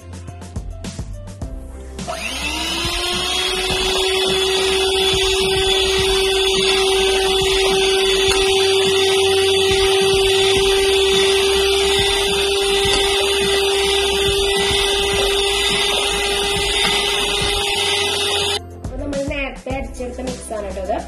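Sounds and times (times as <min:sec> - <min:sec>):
electric hand mixer whirring: 0:02.0 - 0:18.6.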